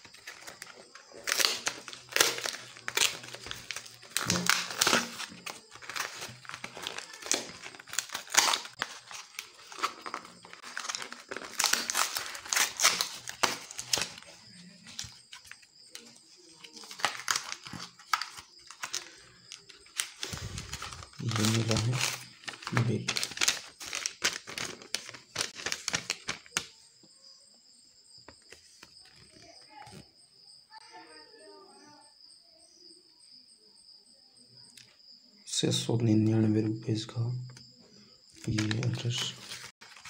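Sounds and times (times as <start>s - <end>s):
plastic and card crinkling and ripping: 0.0s - 26.8s, 28.3s - 30.0s, 38.4s - 40.0s.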